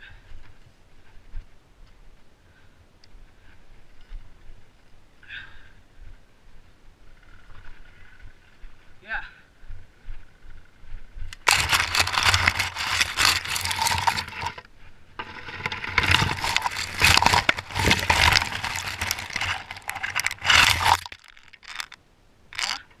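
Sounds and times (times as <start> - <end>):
branches scraping against helmet camera: 11.3 - 23.0.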